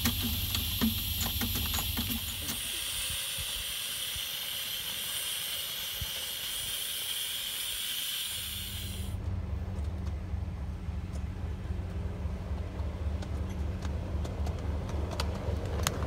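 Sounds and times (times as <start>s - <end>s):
steam hissing: 0.0s - 9.2s
low steady hum: 8.4s - 16.0s.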